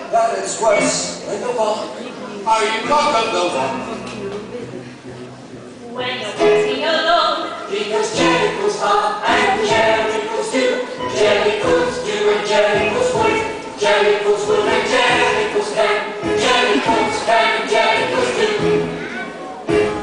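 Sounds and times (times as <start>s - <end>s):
choir singing with instruments: 7.4s - 20.0s.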